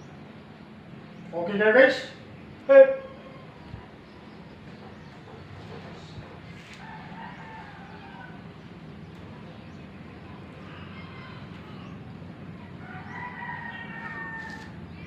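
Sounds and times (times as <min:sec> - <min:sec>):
rooster crowing: 0:06.7 - 0:08.6, 0:10.6 - 0:12.0, 0:12.8 - 0:14.8.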